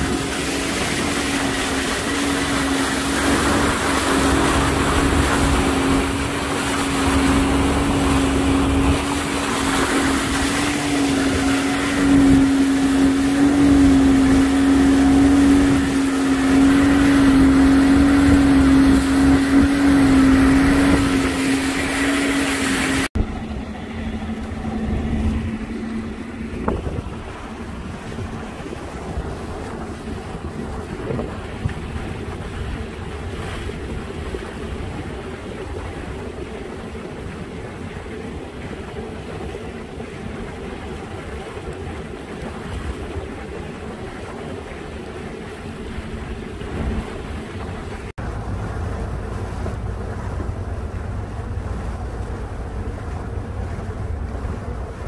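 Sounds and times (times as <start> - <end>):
outboard motor running: 0.0 - 55.0
rushing wind and water: 0.0 - 55.0.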